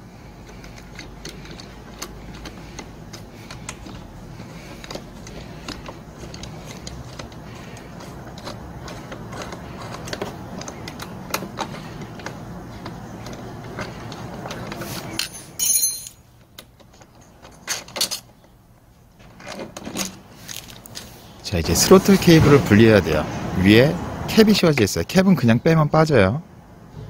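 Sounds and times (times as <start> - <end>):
metal key clicking and scraping: 0.3 - 16.2.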